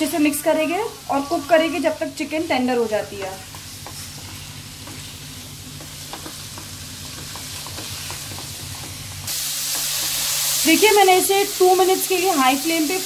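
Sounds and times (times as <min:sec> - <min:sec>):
spatula scraping and tapping pan: 0:03.1 - 0:10.2
chicken sizzling in oil: 0:03.6 - 0:13.0.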